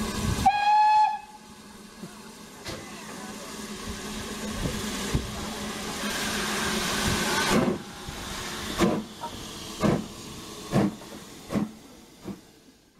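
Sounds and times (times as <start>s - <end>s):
steam locomotive exhaust chuffs: 0.0s - 12.9s
steam locomotive hiss: 0.0s - 12.9s.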